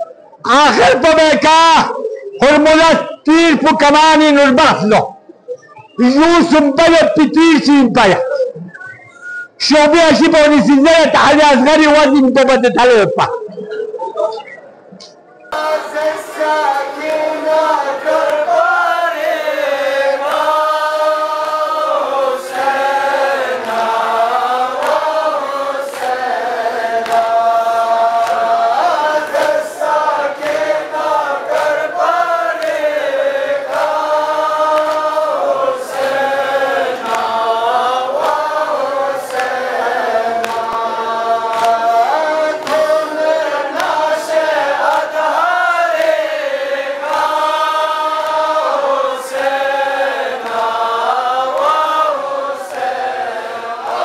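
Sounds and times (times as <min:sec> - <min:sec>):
man chanting through loudspeakers: 0:00.4 - 0:05.1, 0:06.0 - 0:08.5, 0:09.6 - 0:13.3.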